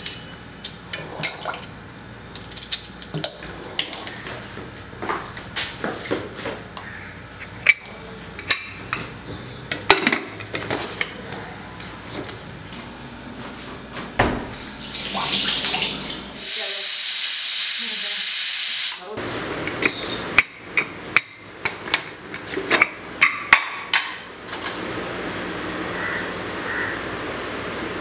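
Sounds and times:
pressure cooker hissing steam: 0:16.4 - 0:19.1.

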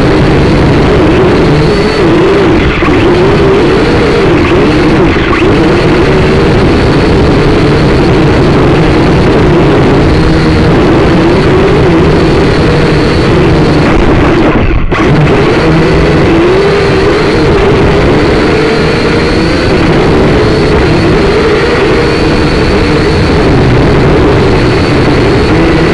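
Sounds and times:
drone motors buzzing whine: 0:00.0 - 0:25.9.

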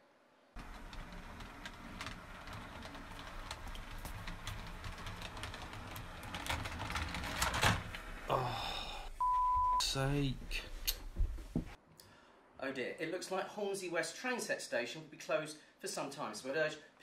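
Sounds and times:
wheels clicking over rails: 0:00.6 - 0:08.3.

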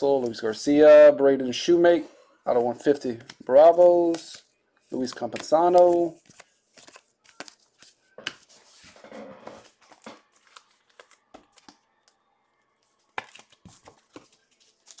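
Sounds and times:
cards tapping and clicking: 0:05.0 - 0:08.5, 0:09.8 - 0:12.2, 0:13.1 - 0:15.0.

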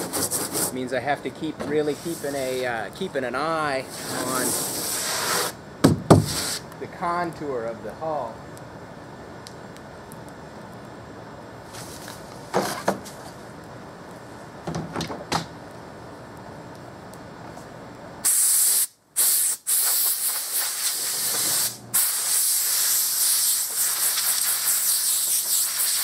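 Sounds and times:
spray foam can hissing: 0:04.0 - 0:05.6, 0:06.2 - 0:06.7, 0:18.2 - 0:26.0
knocks: 0:05.8 - 0:06.3.

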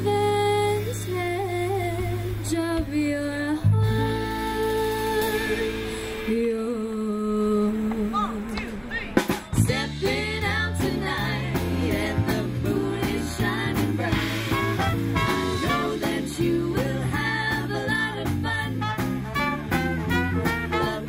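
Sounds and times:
live swing band playing: 0:00.0 - 0:06.6, 0:08.5 - 0:21.0
saxophones and trumpets: 0:14.1 - 0:16.3, 0:18.6 - 0:21.0.

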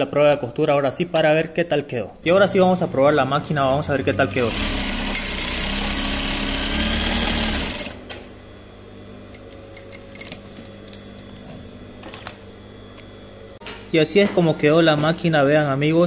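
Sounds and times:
sewing machine sewing: 0:04.3 - 0:08.0.

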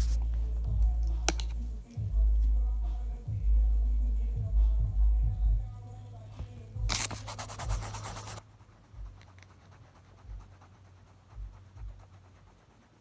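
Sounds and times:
pencil scribbling on paper: 0:00.0 - 0:00.3, 0:06.9 - 0:13.0
soft low bumps: 0:00.0 - 0:06.9.

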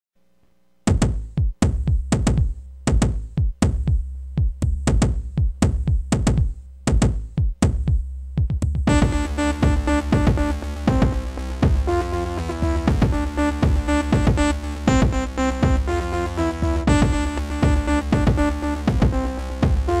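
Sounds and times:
deep programmed drum hits: 0:00.9 - 0:20.0
low bass drone: 0:03.7 - 0:20.0
synthesizer chords: 0:08.9 - 0:20.0.

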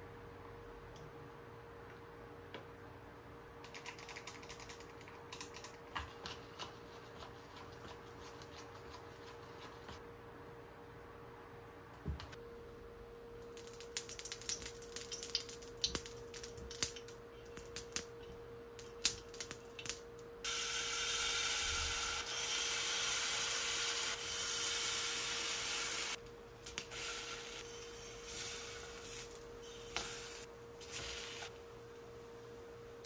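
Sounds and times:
batter sizzling in hot pan: 0:20.4 - 0:31.6.

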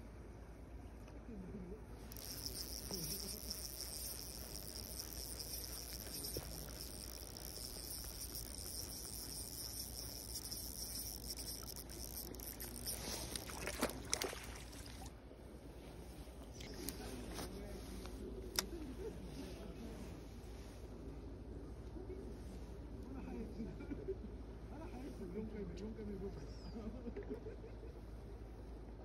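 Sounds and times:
fishing reel buzzing: 0:02.0 - 0:15.1.

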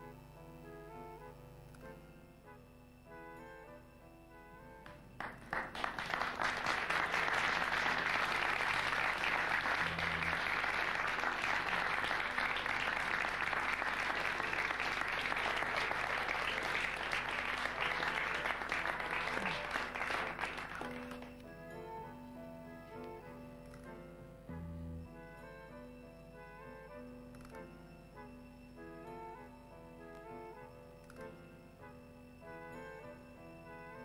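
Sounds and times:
audience applauding: 0:05.2 - 0:21.4.

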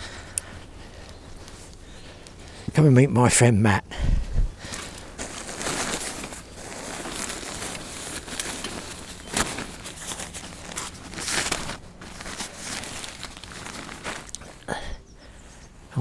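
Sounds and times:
fabric mat rustling and crinkling: 0:04.5 - 0:14.7.

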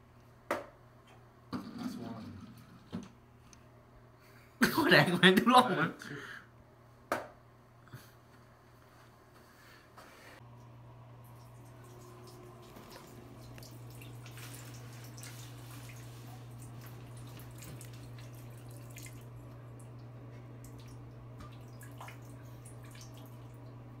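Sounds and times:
steady low hum: 0:10.4 - 0:24.0
water dripping into toilet bowl: 0:11.2 - 0:23.8.

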